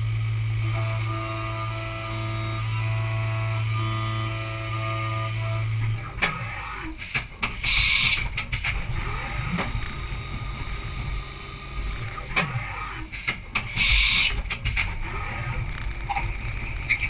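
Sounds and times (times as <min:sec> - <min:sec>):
milling machine running: 0:00.0 - 0:17.0
rising and falling whines: 0:08.8 - 0:13.1.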